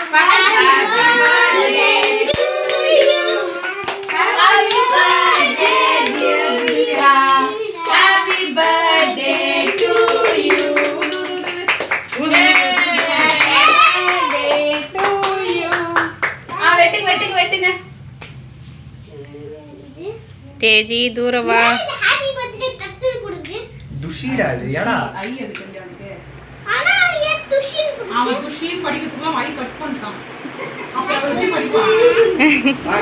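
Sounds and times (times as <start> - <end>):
children and women singing: 0.0 - 16.3
hands clapping: 2.0 - 8.0, 9.7 - 16.6, 18.2 - 18.4.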